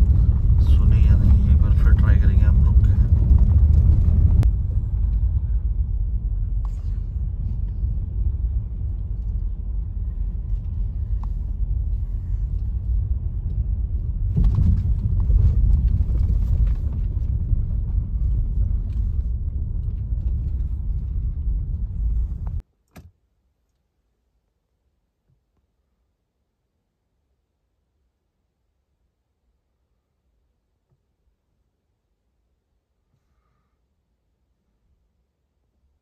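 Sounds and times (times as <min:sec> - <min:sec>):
vehicle engine and road rumble: 0:00.0 - 0:22.6.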